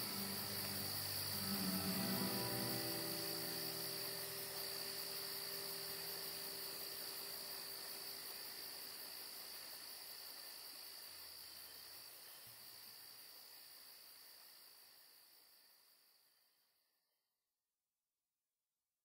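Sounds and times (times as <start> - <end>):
faint held musical tones: 0.0 - 8.8
crickets chirping: 0.0 - 17.0.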